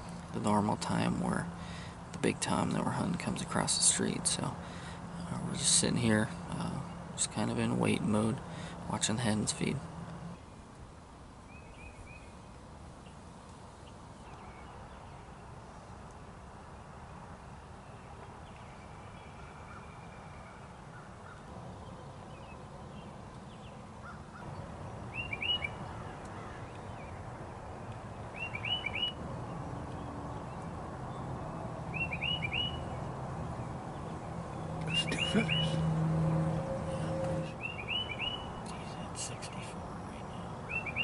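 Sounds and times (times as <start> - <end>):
songbird chirping: 0.0 - 10.8, 11.4 - 41.0
outdoor background rumble: 0.0 - 20.0, 20.7 - 41.0
low steady drone: 32.8 - 37.7.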